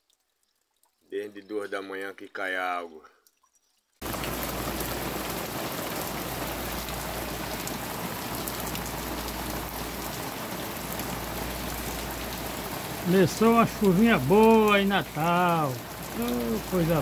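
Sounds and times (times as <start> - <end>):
rain on paving: 4.0 - 17.0.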